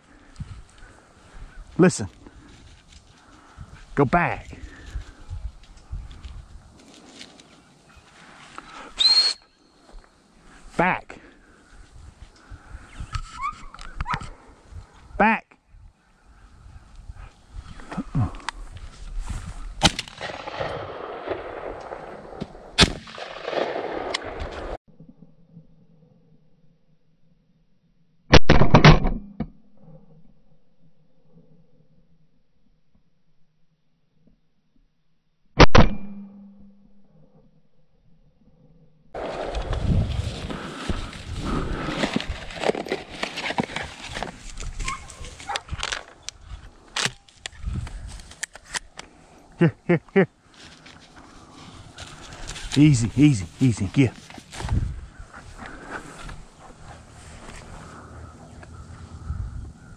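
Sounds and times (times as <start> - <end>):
rustle of person moving: 0.5 - 4.0, 4.6 - 9.0, 17.3 - 20.3, 39.2 - 49.3, 50.4 - 59.3
shotgun shots: 19.8 - 24.8.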